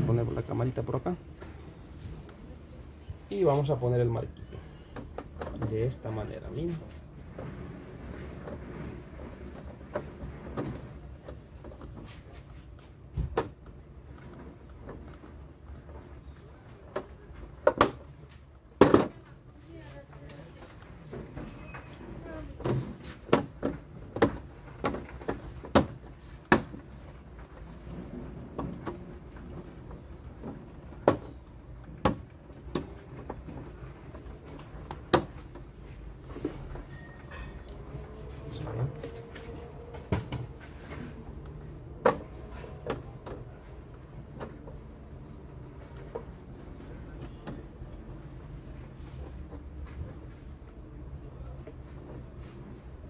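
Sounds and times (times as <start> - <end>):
low steady background hum: 0.0 - 53.0
plastic frame clicks and knocks: 16.7 - 19.4, 22.6 - 35.8, 39.8 - 48.2.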